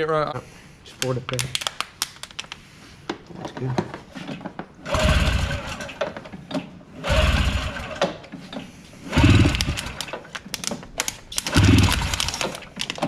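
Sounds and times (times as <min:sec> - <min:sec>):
snowmobile pull starter cranking: 0:04.9 - 0:06.1, 0:07.0 - 0:08.0, 0:09.1 - 0:10.2, 0:11.5 - 0:12.6.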